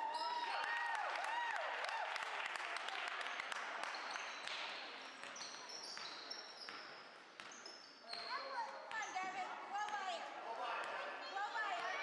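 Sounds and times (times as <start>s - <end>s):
shoe squeaks: 5.4s - 9.2s.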